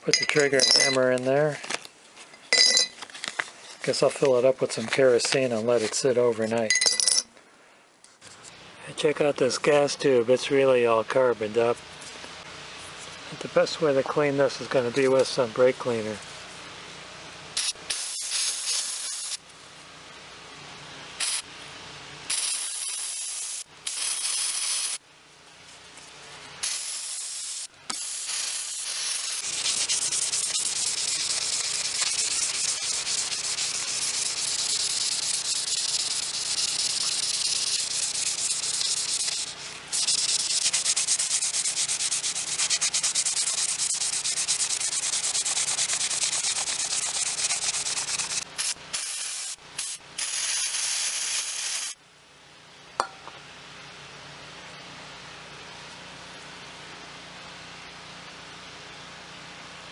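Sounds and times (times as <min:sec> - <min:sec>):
aerosol can spraying: 0:17.6 - 0:19.4, 0:21.2 - 0:21.4, 0:22.3 - 0:25.0, 0:26.6 - 0:52.0.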